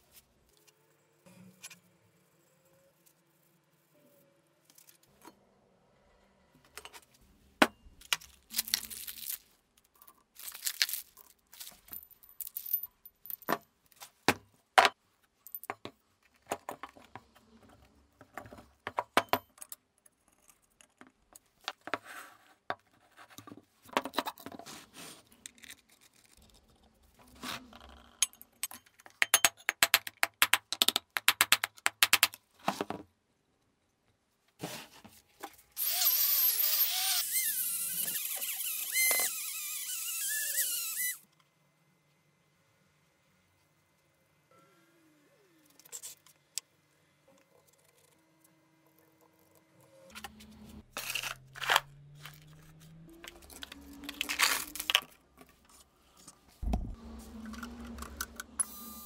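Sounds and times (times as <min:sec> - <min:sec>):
metal parts clanking and scraping: 0:50.2 - 0:55.7.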